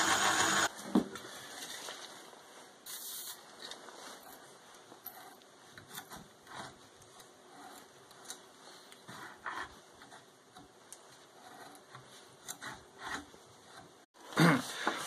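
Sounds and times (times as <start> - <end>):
aerosol spray hiss: 2.9 - 3.4.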